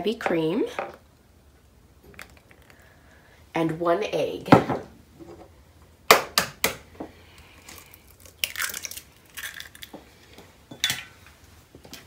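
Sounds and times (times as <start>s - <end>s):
eggshell crackling: 7.3s - 10.4s.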